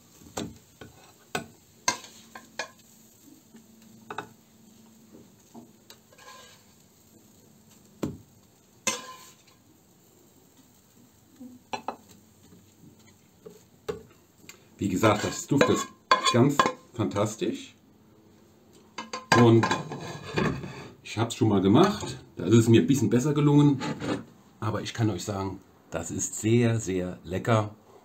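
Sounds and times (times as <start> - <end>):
spatula knocking and scraping pan: 0.3 - 2.9, 5.1 - 6.8, 8.8 - 9.5, 15.2 - 16.8, 19.0 - 20.9, 23.7 - 24.3.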